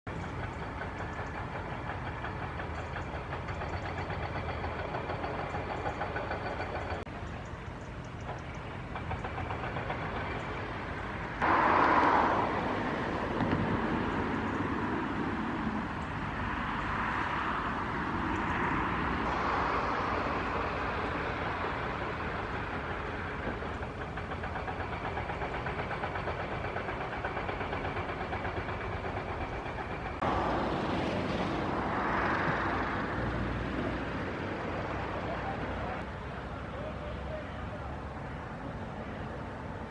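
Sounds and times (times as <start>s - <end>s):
engine and traffic noise: 0.0s - 39.9s
vehicle passing by: 10.6s - 23.4s, 30.2s - 39.9s.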